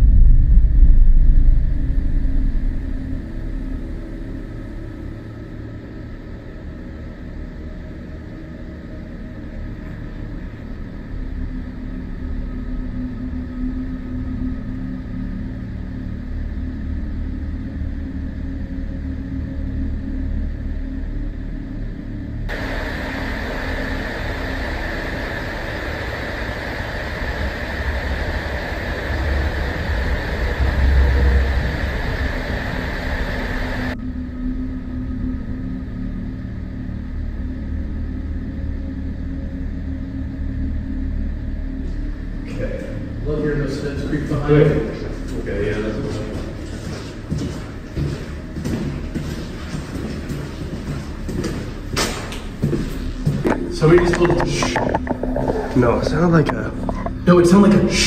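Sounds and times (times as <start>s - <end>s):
deep low rumble: 0.0s - 8.0s, 9.3s - 57.9s
loud hiss: 22.5s - 34.0s.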